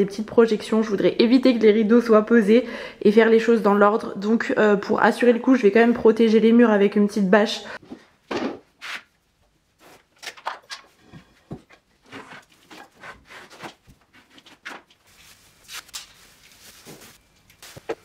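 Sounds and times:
plastic sheet rustling and crinkling: 12.3s - 18.0s.

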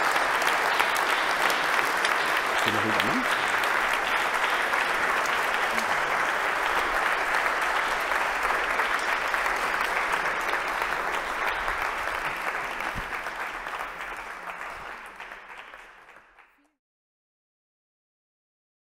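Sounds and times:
audience applauding: 0.0s - 16.7s.

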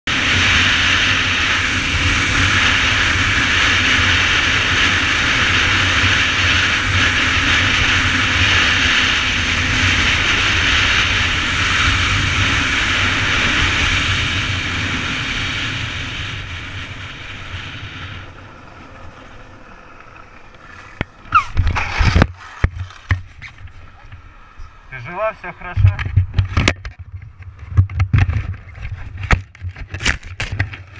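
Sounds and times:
wind rushing over microphone: 0.1s - 19.1s, 20.8s - 24.3s, 24.9s - 30.9s
motorcycle engine running: 0.1s - 24.7s.

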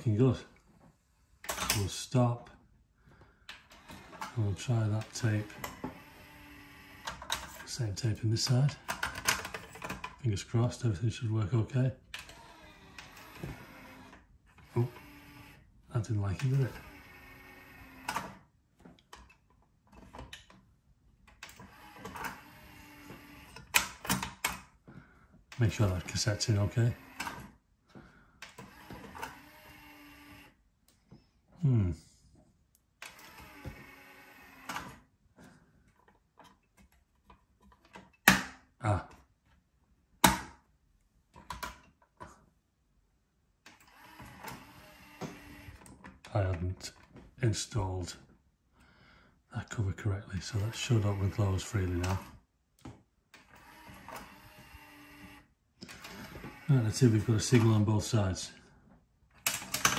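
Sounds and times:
mechanical clicks and clunks: 1.4s - 2.0s, 3.5s - 7.8s, 8.4s - 10.2s, 12.0s - 15.6s, 16.3s - 24.7s, 25.5s - 27.6s, 28.4s - 31.0s, 32.7s - 35.0s, 43.6s - 47.4s, 50.5s - 58.0s, 59.3s - 59.9s
faint motor hum: 3.6s - 7.4s, 12.2s - 18.4s, 25.5s - 27.5s, 28.4s - 30.6s, 53.4s - 57.6s.

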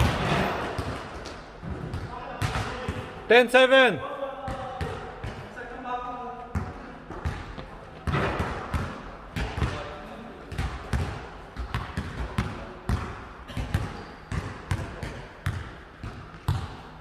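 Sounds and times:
basketball bouncing on gym floor: 0.0s - 3.1s, 6.5s - 17.0s.

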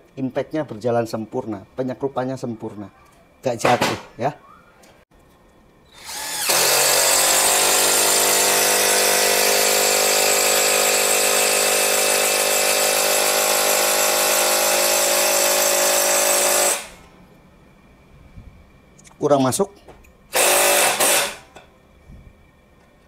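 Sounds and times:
impact driver hammering screw into wood: 6.1s - 17.0s, 20.4s - 21.6s.

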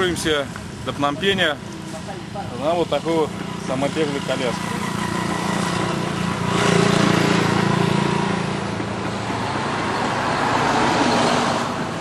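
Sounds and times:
road traffic passing: 0.0s - 12.0s
vehicle engine running: 1.6s - 10.6s.

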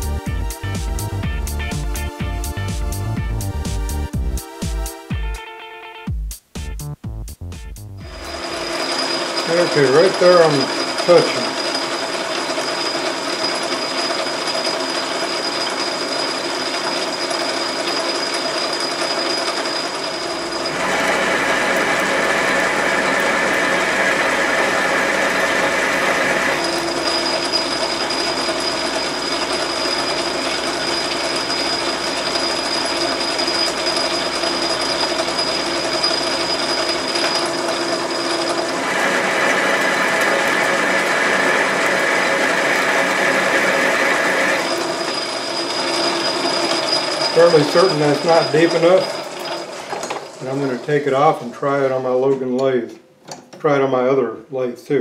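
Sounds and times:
metal lathe gears whirring: 8.0s - 51.4s.

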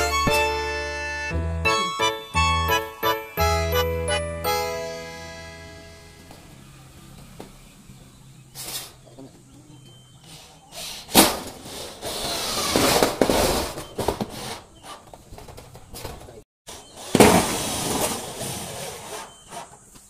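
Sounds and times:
drill driving screws into metal: 10.8s - 13.7s.

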